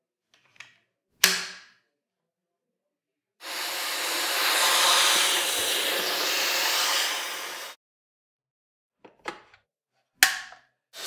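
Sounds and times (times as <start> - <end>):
cordless vacuum running: 3.4 - 7.8.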